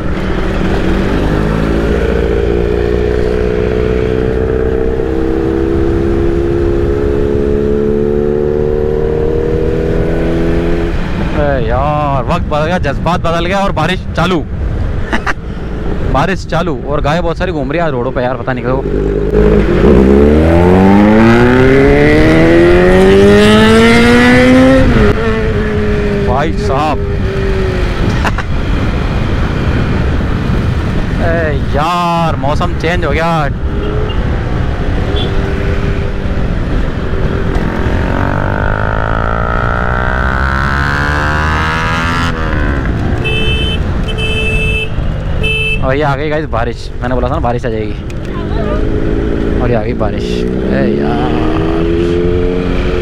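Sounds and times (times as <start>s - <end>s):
motorcycle engine accelerating: 0.0s - 11.4s, 18.6s - 31.2s, 33.6s - 45.5s, 48.0s - 53.0s
wind rush: 18.8s - 45.4s
vehicle horn blasts: 35.1s - 35.4s, 43.2s - 45.9s.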